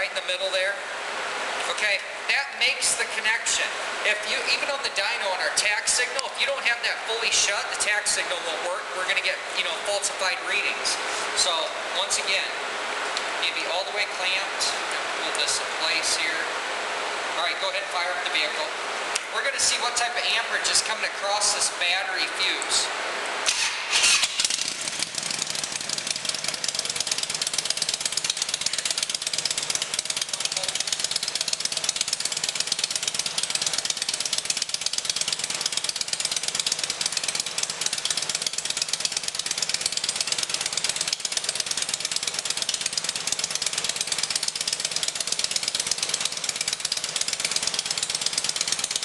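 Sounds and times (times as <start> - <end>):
motorcycle engine starting and idling: 23.4 - 49.0.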